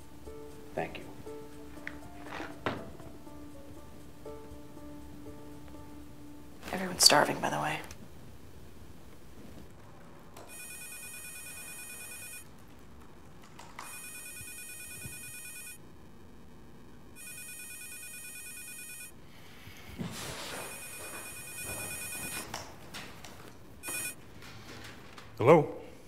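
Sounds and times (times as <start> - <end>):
footsteps and shuffling: 1.3 - 6.0, 6.6 - 15.3, 19.6 - 25.4
desk telephone ringing: 10.4 - 12.5, 13.8 - 15.8, 17.2 - 19.2, 20.5 - 22.5, 23.8 - 24.2.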